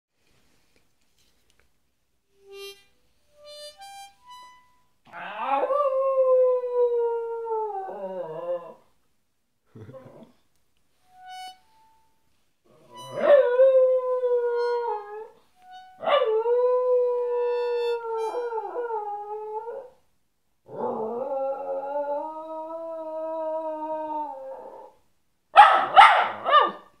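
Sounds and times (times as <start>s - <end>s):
dog howling: 5.1s - 6.0s.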